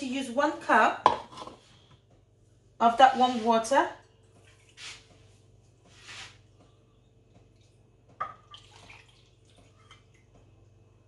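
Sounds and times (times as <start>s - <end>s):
water pouring into a bowl: 7.6s - 10.4s.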